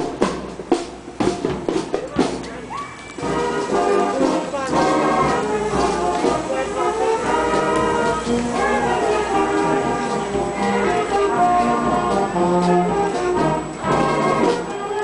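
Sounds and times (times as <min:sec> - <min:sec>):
marching band playing: 0:00.0 - 0:15.0
trombones and trumpets: 0:00.0 - 0:15.0.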